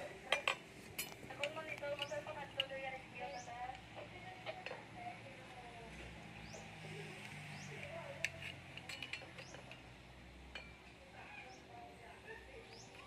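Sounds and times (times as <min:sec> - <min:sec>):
faint metallic clicks and clinks: 0:00.2 - 0:05.5, 0:06.4 - 0:11.1
birds chirping: 0:01.3 - 0:10.0, 0:10.6 - 0:13.0.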